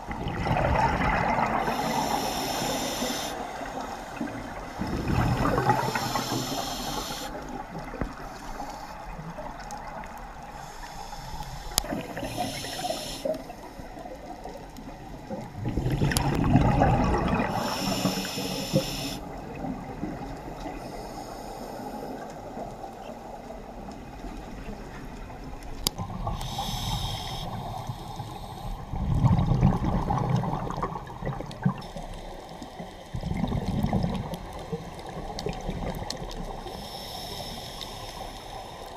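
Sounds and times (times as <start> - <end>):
exhaled bubbles rushing: 0.0 - 2.7, 3.4 - 8.2, 15.3 - 20.6, 28.8 - 31.9, 33.1 - 36.6
faint clicks and crackle: 0.0 - 38.9
diver breathing through regulator: 1.4 - 7.4, 10.5 - 13.9, 17.2 - 19.4, 20.8 - 22.3, 26.2 - 28.8, 36.5 - 38.9.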